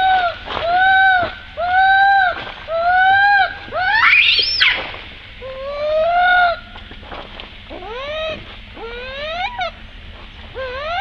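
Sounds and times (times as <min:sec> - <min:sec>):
baby monkey crying: 0:00.0 - 0:04.8, 0:07.7 - 0:09.8, 0:10.6 - 0:11.0.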